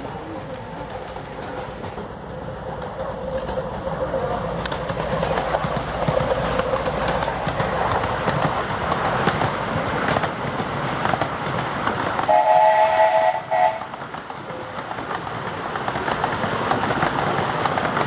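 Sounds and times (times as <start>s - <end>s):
train wheels rattling over track: 0.0s - 18.0s
steam whistle blast: 12.3s - 13.8s.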